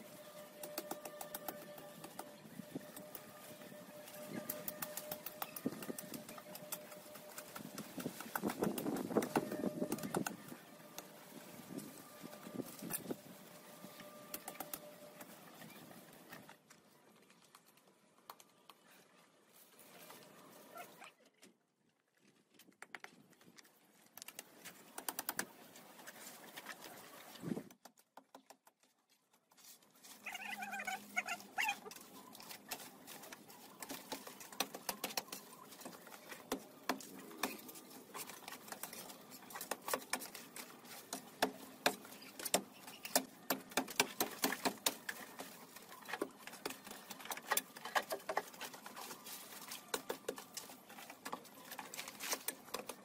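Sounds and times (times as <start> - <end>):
dry vines crackling and snapping: 0.1 - 15.4, 16.4 - 19.0, 28.4 - 53.0.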